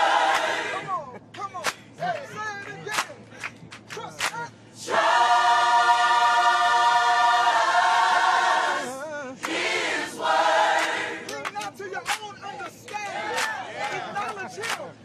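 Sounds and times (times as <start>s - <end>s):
choir singing chords: 0.0s - 0.9s, 4.8s - 11.3s
sharp claps: 1.6s - 4.4s, 10.8s - 14.9s.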